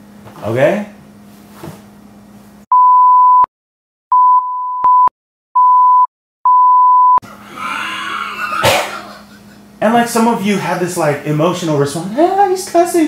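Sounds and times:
censor bleeps: 0:02.7 - 0:03.5, 0:04.1 - 0:07.2.

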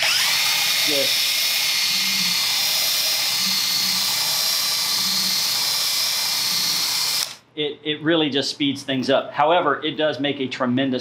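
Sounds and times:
cordless drill whining: 0:00.0 - 0:07.4.

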